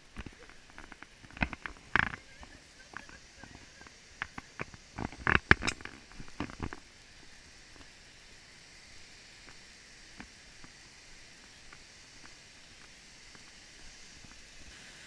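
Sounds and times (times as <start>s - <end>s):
faint hiss: 0.0s - 15.0s
footsteps crunching on dirt: 9.4s - 14.7s.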